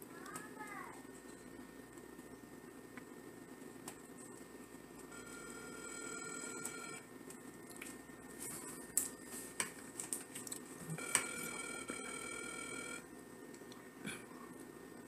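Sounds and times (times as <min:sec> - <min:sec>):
telephone ringback tone: 0:05.1 - 0:07.0, 0:10.9 - 0:13.0.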